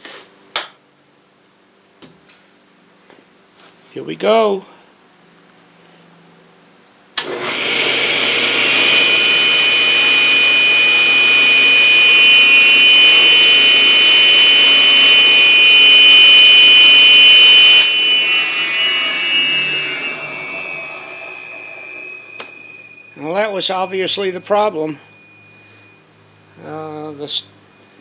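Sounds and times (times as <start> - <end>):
saw motor winding down: 7.2 - 24.9
table saw motor whining: 7.2 - 26.0.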